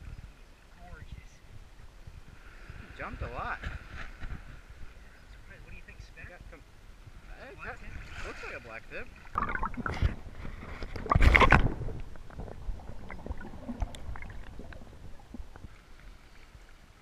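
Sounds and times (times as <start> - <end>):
water sloshing and splashing: 7.7 - 17.0.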